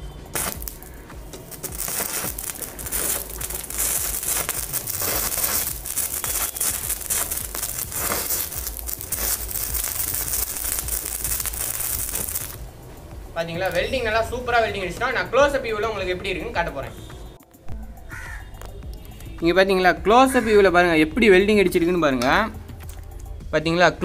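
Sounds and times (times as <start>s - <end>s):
welding arc crackling and sizzling: 0.0s - 15.6s.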